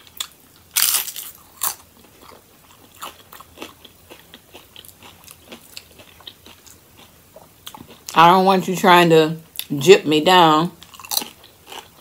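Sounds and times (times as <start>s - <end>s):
tortilla chip crunching: 0.0s - 8.1s, 10.8s - 12.0s.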